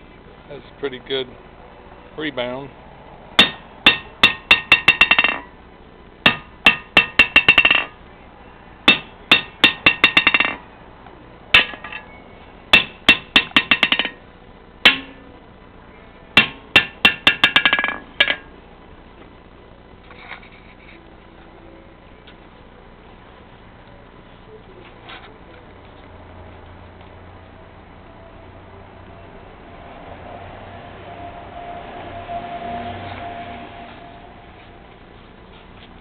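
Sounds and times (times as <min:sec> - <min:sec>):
sledgehammer bouncing on anvil: 0:03.4 - 0:05.5, 0:06.3 - 0:08.0, 0:08.9 - 0:10.6, 0:11.6 - 0:12.1, 0:12.8 - 0:14.2, 0:14.8 - 0:15.3, 0:16.4 - 0:18.5.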